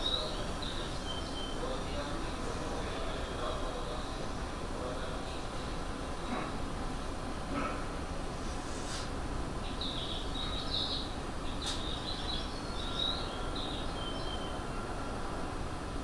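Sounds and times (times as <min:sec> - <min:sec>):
birds chirping: 0:00.0 - 0:02.1, 0:09.6 - 0:14.8
stopped train humming: 0:08.2 - 0:16.0.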